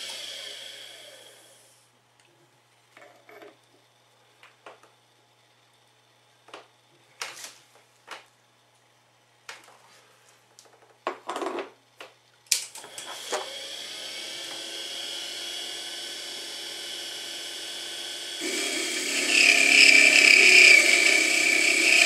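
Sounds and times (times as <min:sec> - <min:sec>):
electric motor whining: 0:13.0 - 0:22.0.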